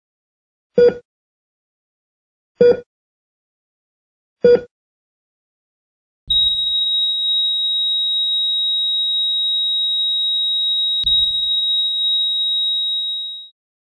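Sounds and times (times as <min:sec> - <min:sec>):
heart monitor flatline tone: 0:06.3 - 0:13.5.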